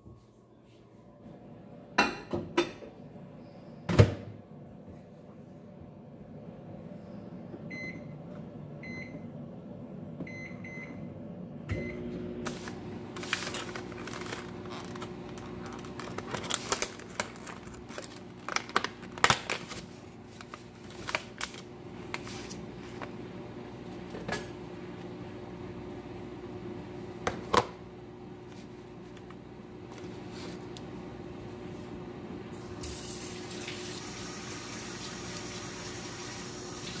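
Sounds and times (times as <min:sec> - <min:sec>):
microwave humming: 0:00.0 - 0:37.0
microwave keypad beeping: 0:07.7 - 0:08.2, 0:08.8 - 0:09.3, 0:10.3 - 0:11.1
plastic container crackling: 0:12.5 - 0:22.6.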